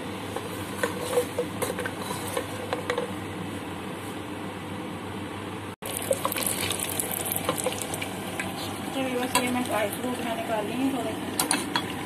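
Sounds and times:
nuts sizzling in ghee: 0:05.8 - 0:10.4.

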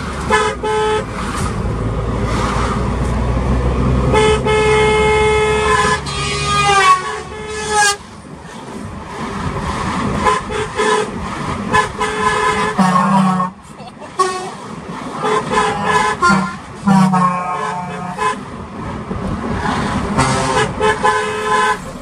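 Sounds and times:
low engine hum: 0:00.0 - 0:17.5, 0:18.4 - 0:22.0
vehicle horns honking: 0:00.2 - 0:01.2, 0:04.1 - 0:08.0, 0:10.2 - 0:18.5, 0:20.1 - 0:22.0.

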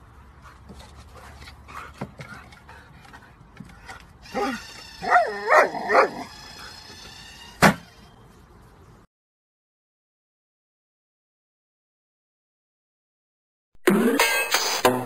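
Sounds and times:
dog barking and yipping: 0:04.2 - 0:07.1.

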